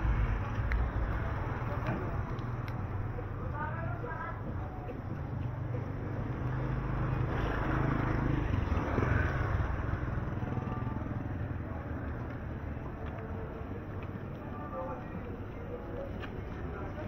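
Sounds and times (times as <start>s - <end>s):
motorcycle passing by: 5.2s - 12.6s.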